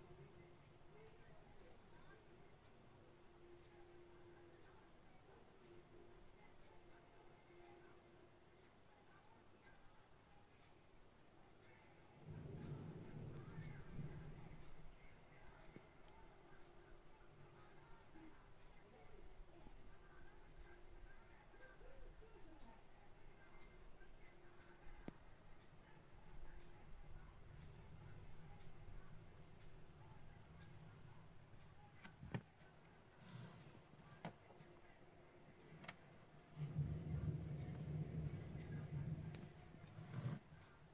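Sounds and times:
faint crickets chirping: 0:00.0 - 0:40.9
low hum: 0:12.0 - 0:17.4.

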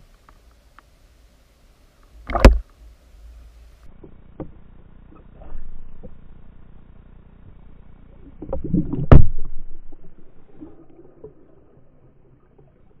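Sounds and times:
muffled underwater water noise: 0:00.0 - 0:13.0
dull knocks underwater: 0:02.2 - 0:02.7, 0:08.3 - 0:11.4.

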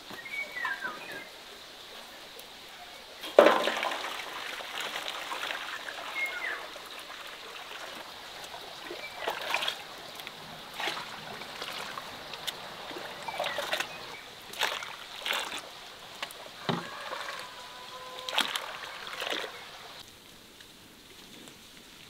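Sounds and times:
liquid sloshing and splashing: 0:03.2 - 0:20.0.

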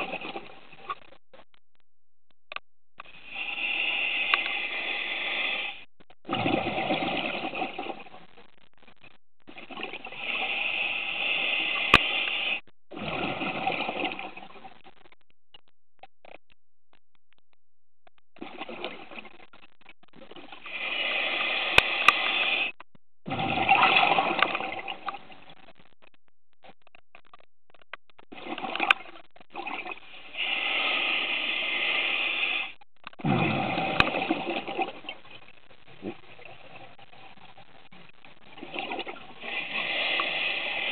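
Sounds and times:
exhaled bubbles rushing: 0:06.2 - 0:08.1, 0:12.9 - 0:14.7, 0:23.3 - 0:25.4, 0:33.2 - 0:35.2
regulator breathing hiss: 0:20.7 - 0:22.7, 0:30.3 - 0:32.7
small clicks: 0:24.4 - 0:29.9.

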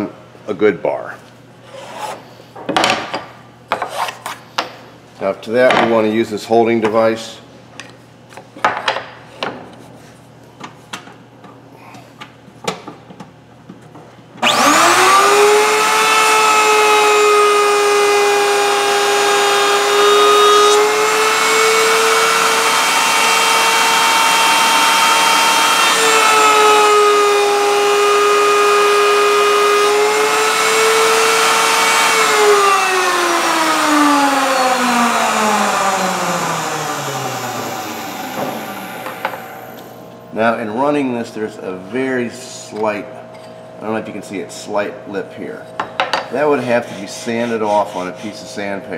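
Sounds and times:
router whining: 0:14.4 - 0:40.2.

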